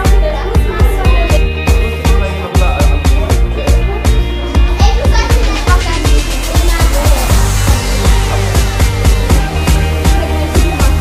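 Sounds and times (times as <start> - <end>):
fast beat music with heavy bass: 4.8 - 11.0.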